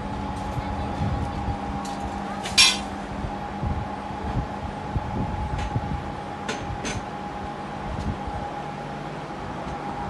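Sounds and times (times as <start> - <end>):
steady hum: 0.0 - 10.0
metal table frame clanking: 2.6 - 2.8.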